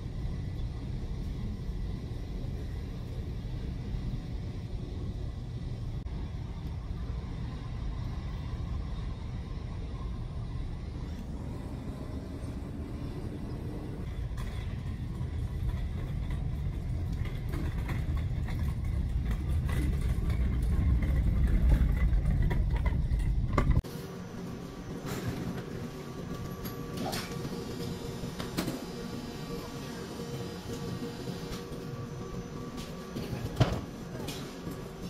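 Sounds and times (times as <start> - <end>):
steady low rumble: 0.0 - 24.9.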